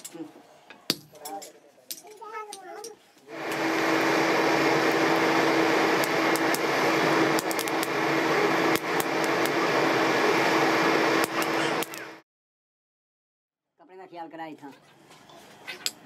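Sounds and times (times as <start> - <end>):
forge blower rushing air: 3.3 - 12.2
motor hum: 3.3 - 12.2.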